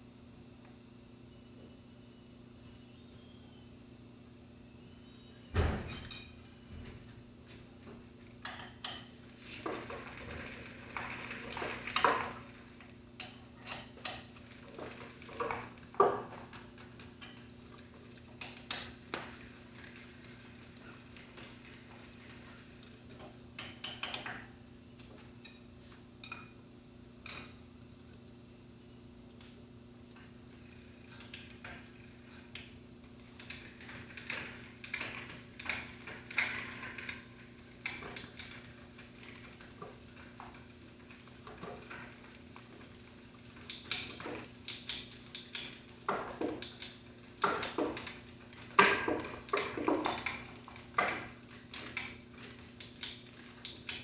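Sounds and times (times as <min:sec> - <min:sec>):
metal tools clinking and scraping: 0:05.8 - 0:07.8.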